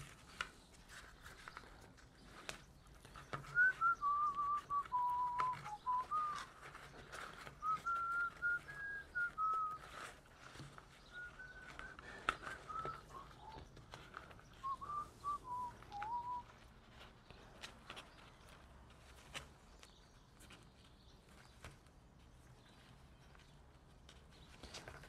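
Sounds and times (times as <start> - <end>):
person whistling a slow tune: 3.5 - 6.5, 7.6 - 9.9, 11.0 - 13.7, 14.6 - 16.5.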